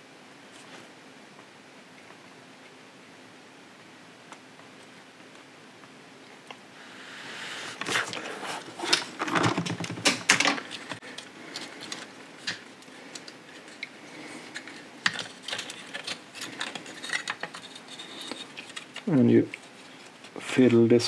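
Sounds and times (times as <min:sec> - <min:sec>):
plastic parts clicking and rattling: 0:07.8 - 0:20.4.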